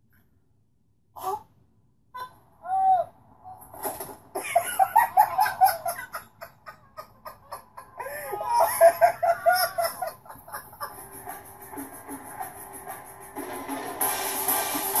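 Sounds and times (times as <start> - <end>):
person laughing hard: 4.4 - 11.4.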